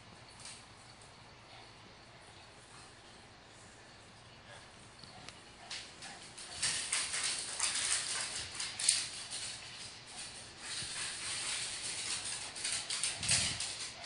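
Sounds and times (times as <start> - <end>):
dog claws clicking on hardwood floor: 5.7 - 14.0.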